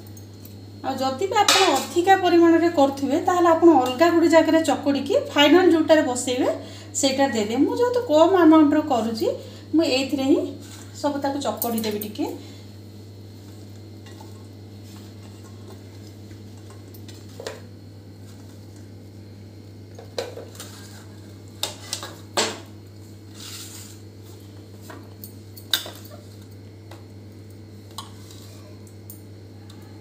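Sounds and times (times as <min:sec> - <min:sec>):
scrape in bowl: 0:23.3 - 0:24.0.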